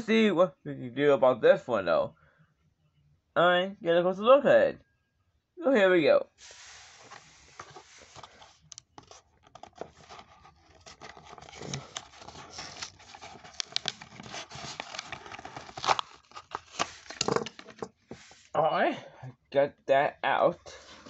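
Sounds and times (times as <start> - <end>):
plastic blister pack tearing: 9.9 - 17.4.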